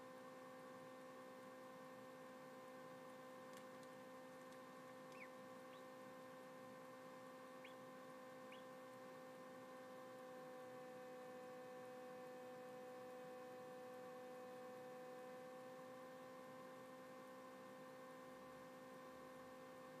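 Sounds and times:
incubator electrical hum: 0:00.0 - 0:20.0
chick peeping: 0:05.2 - 0:05.8.

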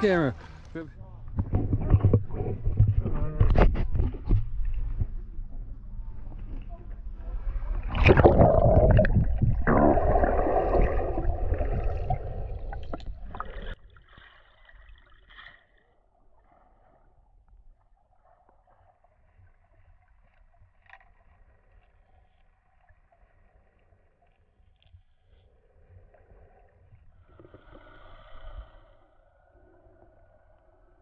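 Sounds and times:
water splashing and bubbling: 0:07.8 - 0:24.2
faint underwater hiss: 0:23.4 - 0:31.0.

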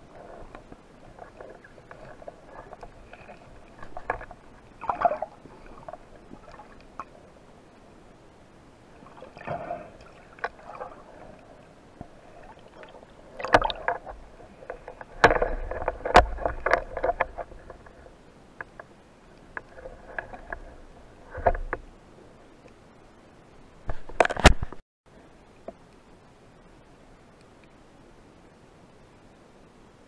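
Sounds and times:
underwater clicks and knocks: 0:00.2 - 0:07.1, 0:12.0 - 0:18.9, 0:19.5 - 0:21.9, 0:23.9 - 0:24.8.

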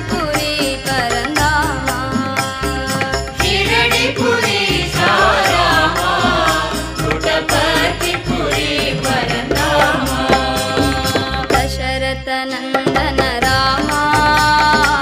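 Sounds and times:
drum strikes: 0:00.0 - 0:11.8
person singing devotional song: 0:00.0 - 0:15.0.

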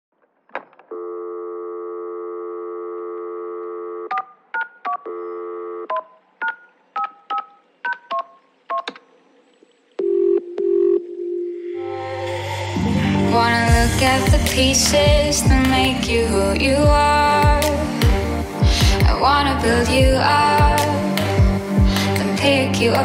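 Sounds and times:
telephone dial tone: 0:00.9 - 0:09.0, 0:10.0 - 0:11.5
low ringing tone: 0:10.0 - 0:11.9.

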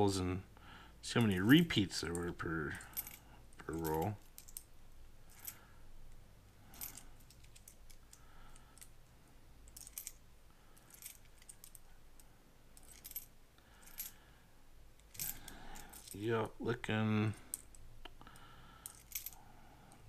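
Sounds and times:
coins clinking: 0:09.7 - 0:10.2, 0:12.8 - 0:14.2, 0:15.0 - 0:16.2, 0:18.8 - 0:19.4.

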